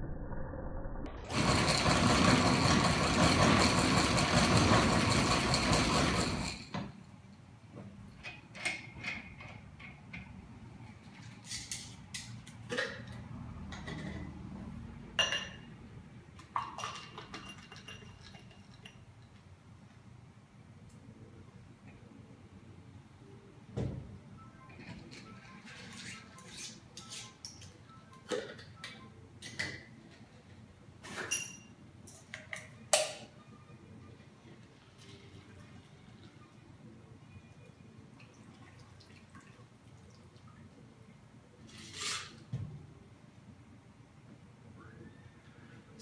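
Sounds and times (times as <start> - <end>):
metal and glassware clinking: 15.2 - 15.7, 16.6 - 19.0, 31.0 - 32.3.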